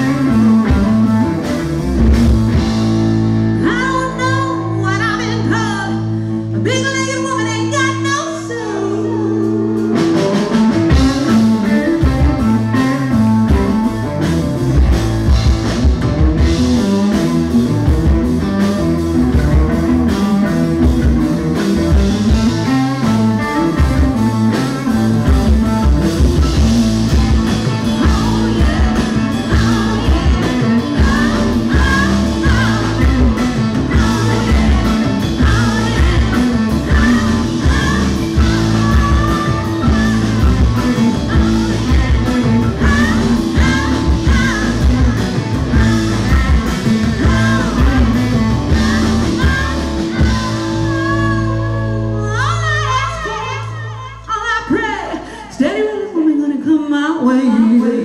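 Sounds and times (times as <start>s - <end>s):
live rock band playing: 0.0s - 58.0s
person singing: 26.4s - 58.0s.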